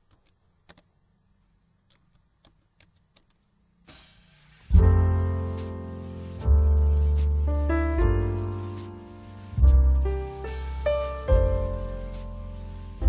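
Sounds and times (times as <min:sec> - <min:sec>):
keyboard typing clicks: 0:00.0 - 0:00.9, 0:01.8 - 0:03.4
piano chords over deep bass: 0:04.7 - 0:13.0.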